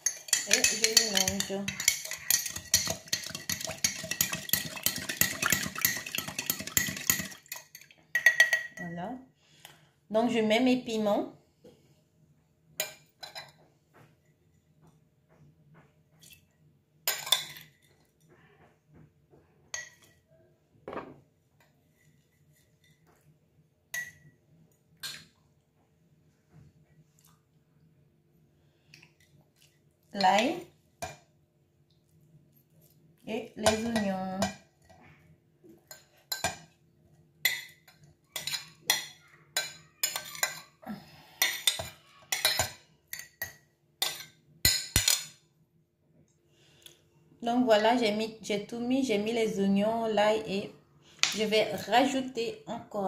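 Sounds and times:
spoon clinking against glass jar: 0:00.0 - 0:08.8.

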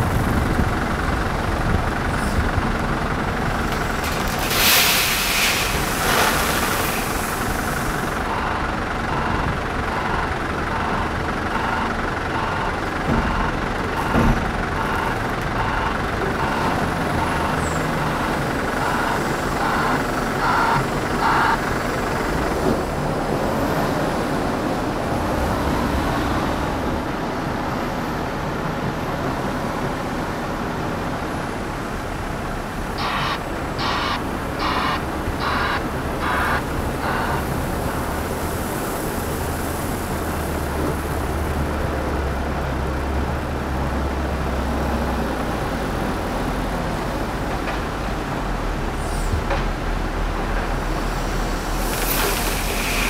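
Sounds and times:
diesel engine running: 0:00.0 - 0:53.0
reversing alarm beeping: 0:08.2 - 0:21.8, 0:33.0 - 0:38.2.

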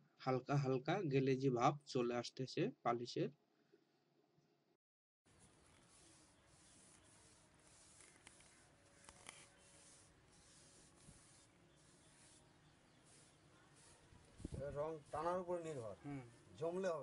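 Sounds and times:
polishing pad rubbing wood: 0:05.4 - 0:16.0.

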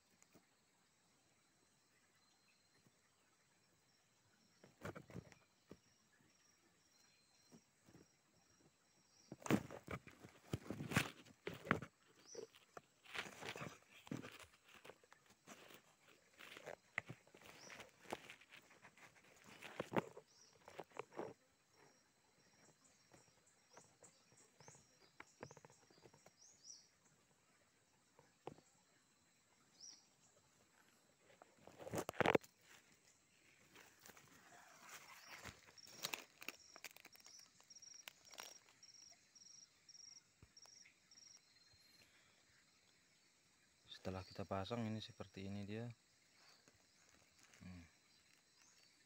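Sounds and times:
faint high insect chirp: 0:00.0 - 0:49.0
sticks and leaves rustling: 0:09.3 - 0:21.9, 0:30.7 - 0:39.1, 0:46.4 - 0:48.9.

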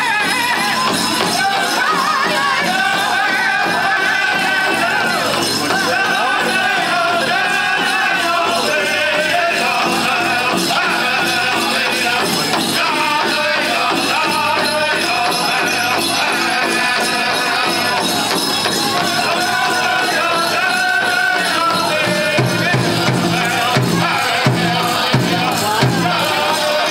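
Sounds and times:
big drum beat: 0:00.0 - 0:26.9
drum group singing: 0:00.0 - 0:26.9
jingling leg bells: 0:00.0 - 0:26.9.

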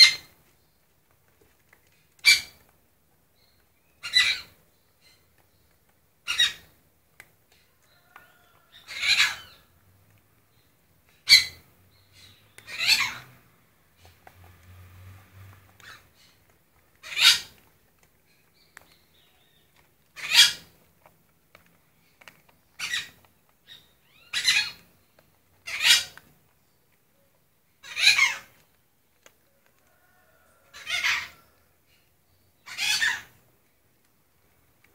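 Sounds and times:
squeaky animal calls: 0:08.8 - 0:09.6, 0:12.7 - 0:13.3, 0:17.0 - 0:17.6, 0:20.2 - 0:20.7, 0:24.1 - 0:24.8, 0:25.6 - 0:26.2, 0:27.8 - 0:28.6, 0:30.8 - 0:31.4, 0:32.6 - 0:33.3.

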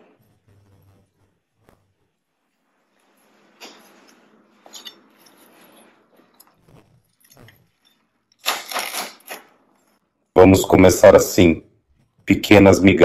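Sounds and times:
hand and blade rustling: 0:03.1 - 0:09.5.

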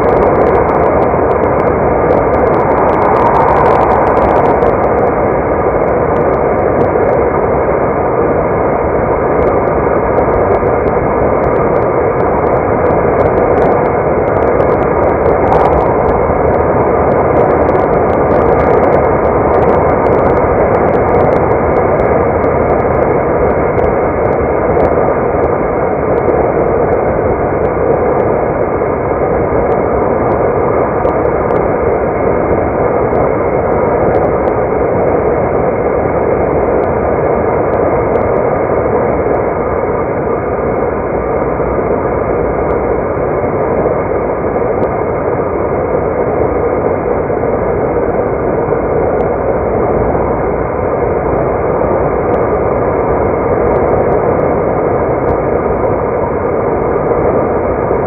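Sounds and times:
car road noise: 0:00.0 - 0:28.4.

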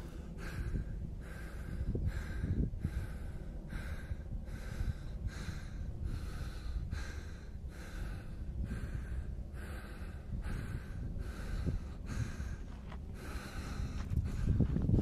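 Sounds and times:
low rumble: 0:00.0 - 0:15.0
footsteps crunching on dirt: 0:12.6 - 0:13.2, 0:13.9 - 0:15.0.

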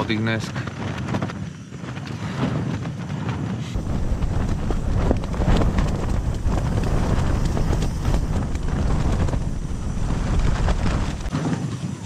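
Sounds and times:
wind buffeting microphone: 0:00.0 - 0:12.0
sharp flapping knocks: 0:03.8 - 0:11.6.

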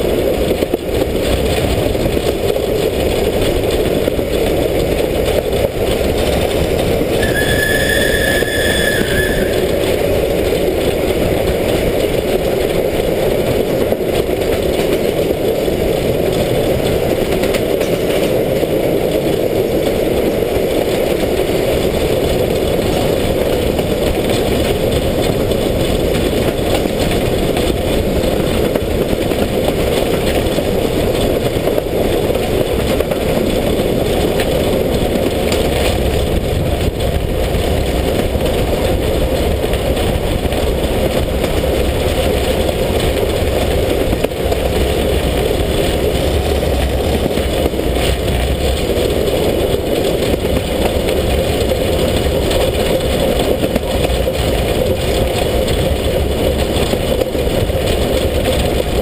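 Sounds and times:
steam locomotive running: 0:00.0 - 0:59.0.

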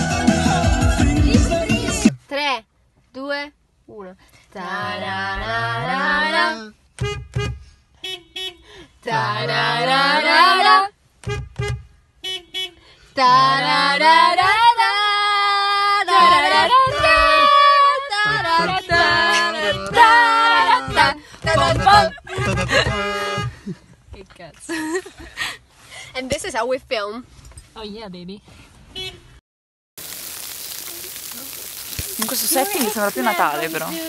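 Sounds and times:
voices singing long sliding notes: 0:13.2 - 0:22.1, 0:30.0 - 0:34.0.

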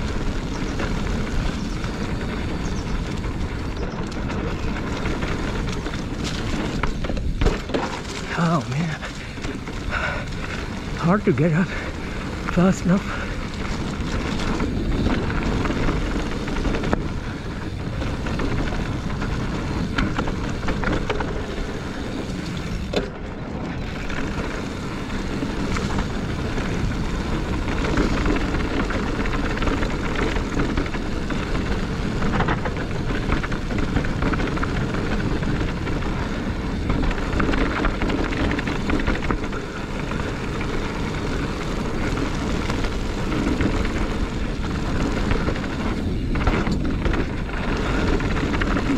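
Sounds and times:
bike knocks and rattles: 0:00.0 - 0:48.9
bike tyre noise: 0:00.0 - 0:48.9.

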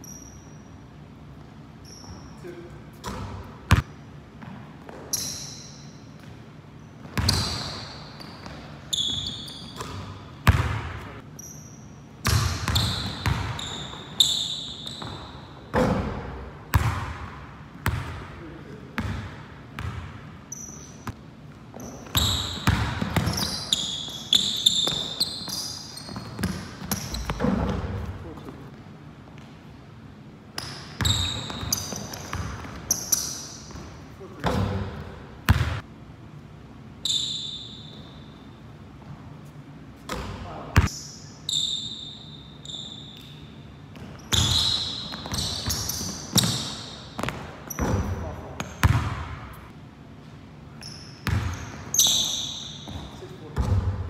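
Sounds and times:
sneaker squeaks on hardwood: 0:00.0 - 0:00.7, 0:01.8 - 0:02.4, 0:04.4 - 0:06.1, 0:06.8 - 0:16.0, 0:20.5 - 0:28.0, 0:30.6 - 0:34.6, 0:37.0 - 0:38.4, 0:40.8 - 0:48.2, 0:50.8 - 0:53.8
basketball bouncing on wooden floor: 0:08.4 - 0:11.1, 0:21.0 - 0:28.1, 0:33.7 - 0:35.8, 0:44.0 - 0:49.5, 0:51.2 - 0:52.2, 0:52.8 - 0:54.0.

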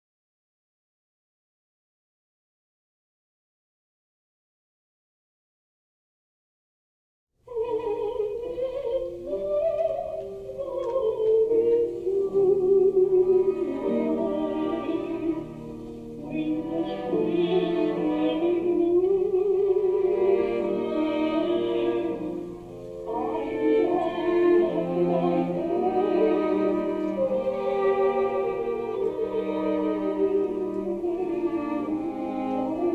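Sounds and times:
bowed violin: 0:07.5 - 0:32.9
keyboard: 0:07.5 - 0:32.9.

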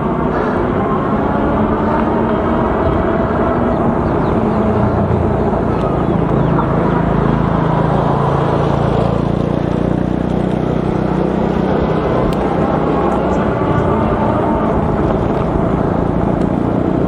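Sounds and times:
small motorcycle engine passing: 0:00.0 - 0:17.0
wind and road noise: 0:00.0 - 0:17.0.

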